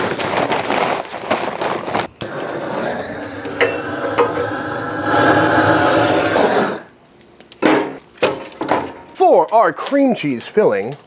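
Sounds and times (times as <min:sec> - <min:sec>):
gas torch burning: 0:01.9 - 0:07.5.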